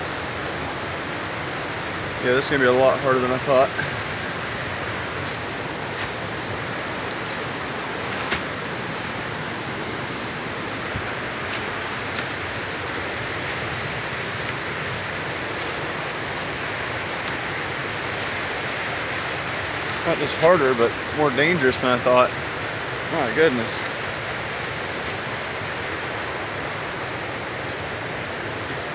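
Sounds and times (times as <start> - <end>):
creek water rushing: 0.0 - 28.9
footsteps in dry leaves: 4.0 - 10.0, 10.8 - 20.4, 24.8 - 28.9.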